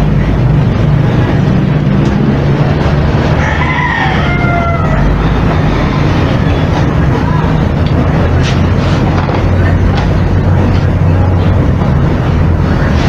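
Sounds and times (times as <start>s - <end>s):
rooster crowing: 3.2s - 5.4s.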